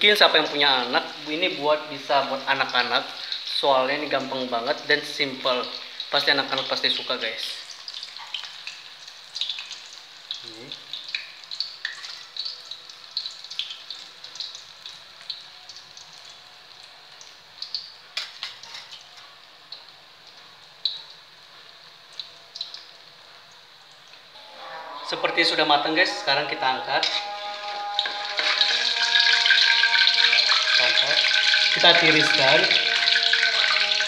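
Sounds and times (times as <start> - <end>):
onion rings deep-frying in oil: 0.0 - 34.0
oil crackles and pops: 6.5 - 24.3.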